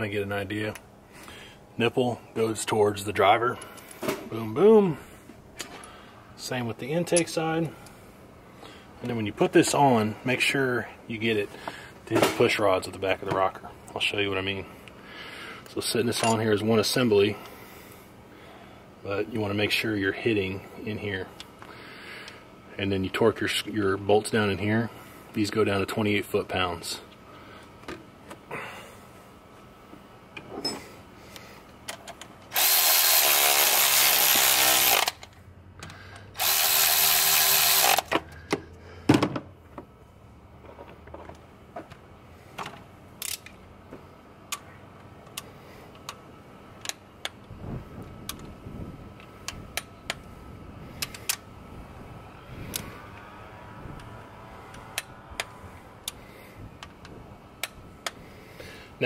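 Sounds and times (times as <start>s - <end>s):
power tool running: 32.5s - 35.2s, 36.3s - 38.1s.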